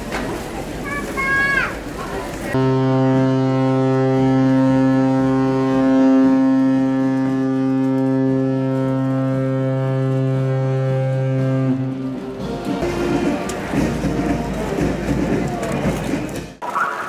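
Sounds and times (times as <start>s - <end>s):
deep ship horn blast: 2.5s - 14.9s.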